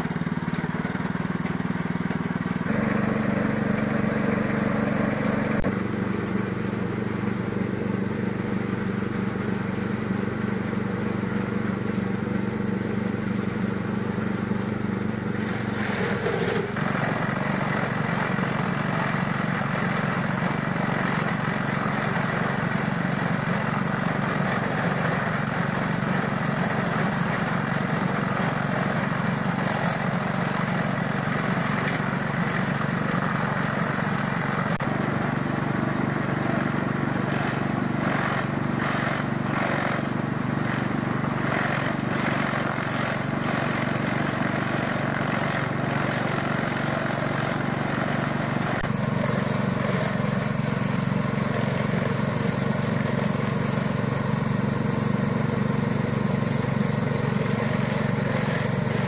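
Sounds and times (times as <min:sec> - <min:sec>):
chaff cutter shredding stalks: 0:00.0 - 0:59.0
small petrol engine running: 0:00.0 - 0:59.0.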